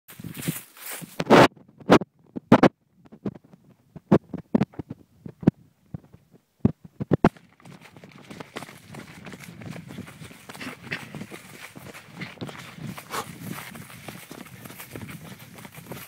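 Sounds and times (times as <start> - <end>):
footsteps on woodland path: 0.1 - 1.4, 6.9 - 16.0.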